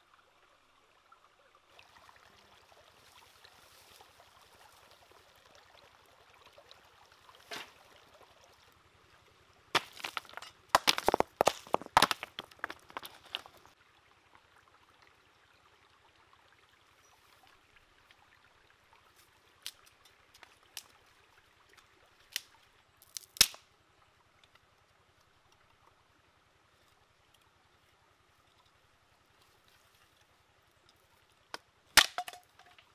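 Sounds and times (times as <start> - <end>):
running water hiss: 1.7 - 9.7, 16.0 - 23.4
river stones clacking: 9.7 - 13.8, 31.5 - 32.9
dry sticks snapping: 22.3 - 23.6.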